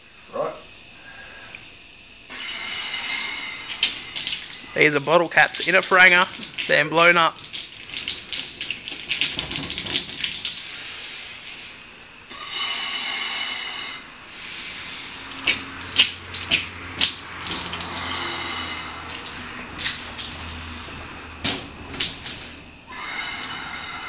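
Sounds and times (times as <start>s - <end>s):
breath hissing into balloon: 2.3s - 4.8s, 10.6s - 16.0s, 16.6s - 19.2s.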